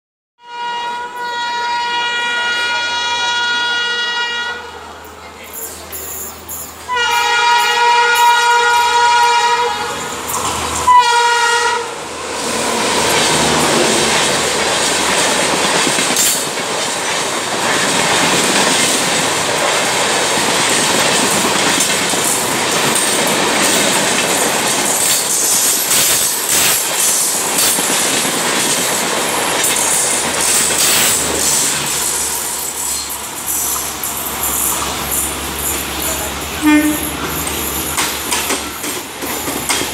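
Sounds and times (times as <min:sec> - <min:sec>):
train horn blast: 0:00.4 - 0:04.9, 0:06.9 - 0:10.2, 0:10.8 - 0:12.0, 0:36.6 - 0:37.3
passing train coaches rushing: 0:00.5 - 0:39.9
wheels clacking over rail joints: 0:05.5 - 0:39.9.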